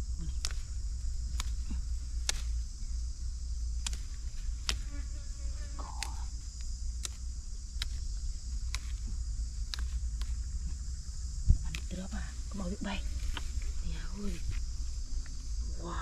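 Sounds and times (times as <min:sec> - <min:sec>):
insects buzzing: 0:00.0 - 0:16.0
sharp clicks: 0:00.2 - 0:02.6, 0:03.7 - 0:04.9, 0:05.9 - 0:10.8
low rumble: 0:06.0 - 0:16.0.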